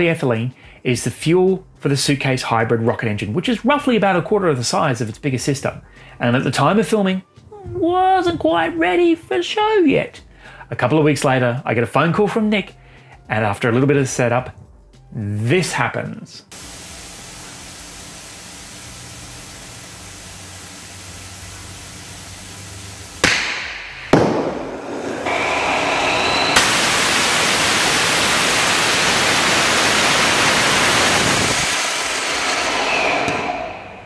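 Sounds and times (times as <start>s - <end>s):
rocket engine hissing: 16.5s - 34.0s
rocket engine roaring: 16.5s - 34.0s
sharp cracks: 23.2s - 25.2s.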